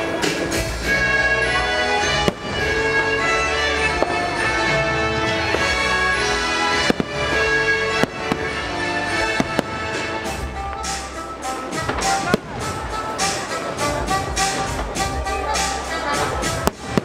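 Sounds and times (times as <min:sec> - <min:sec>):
fireworks bangs: 0:00.0 - 0:17.0
fireworks crackling: 0:00.0 - 0:17.0
loud music: 0:00.0 - 0:17.0.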